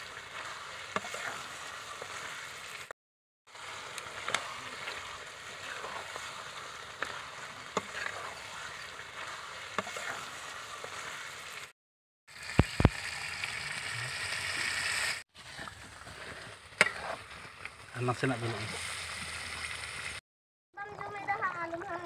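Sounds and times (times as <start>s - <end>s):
metal spatula scraping a pan: 0.0s - 2.5s, 4.0s - 11.3s, 15.4s - 17.2s
curry sizzling in a pan: 0.0s - 2.9s, 3.5s - 11.7s, 12.3s - 20.2s.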